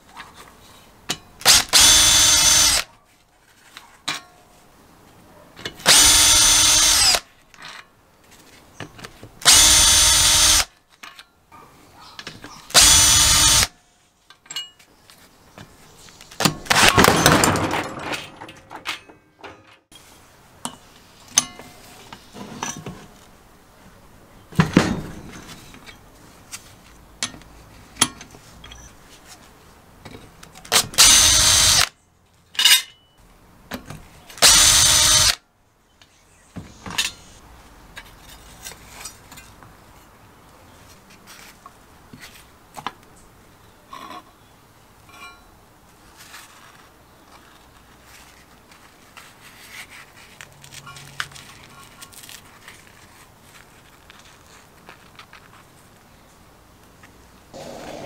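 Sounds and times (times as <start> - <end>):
power drill spinning: 1.4 - 2.8, 5.8 - 7.2, 9.4 - 10.7, 12.7 - 13.7, 31.0 - 31.9, 34.4 - 35.4
metal parts clicking and knocking: 16.4 - 19.9.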